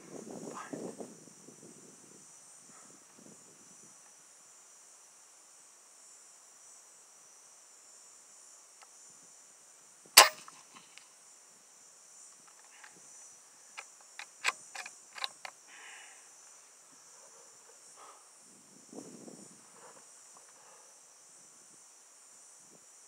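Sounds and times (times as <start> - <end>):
crickets chirping: 0.0 - 23.0
air rifle shot: 10.2 - 10.6
metallic clicks of rifle action: 10.2 - 10.8, 13.8 - 15.6.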